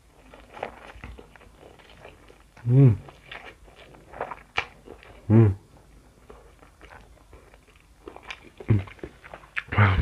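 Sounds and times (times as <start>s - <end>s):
quiet chewing: 0.0s - 10.0s
person humming: 5.3s - 5.6s.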